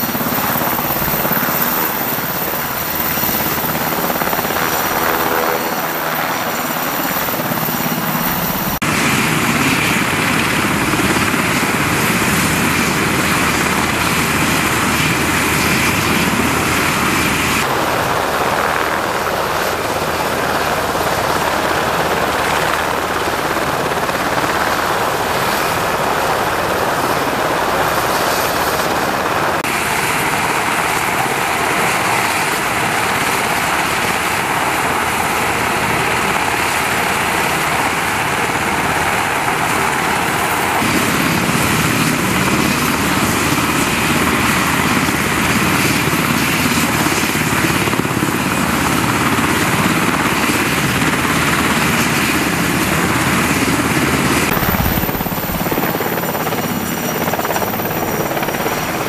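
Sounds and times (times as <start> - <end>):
helicopter engine whine and rotors: 0.0 - 59.0.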